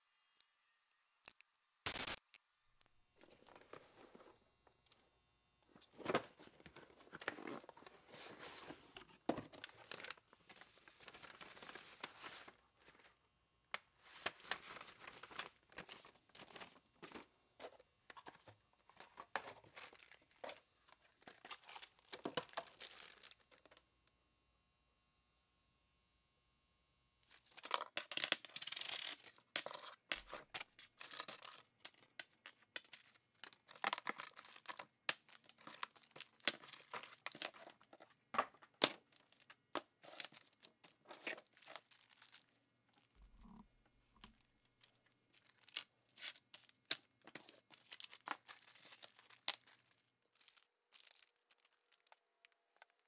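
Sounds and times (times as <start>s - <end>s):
paper rustling and crinkling: 5.7s - 13.2s, 13.8s - 23.7s, 27.3s - 43.1s, 44.2s - 52.2s.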